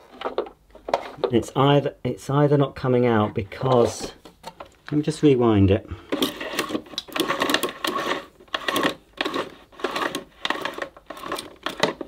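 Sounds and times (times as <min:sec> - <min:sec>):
vacuum cable reel rattling: 0:06.1 - 0:12.0.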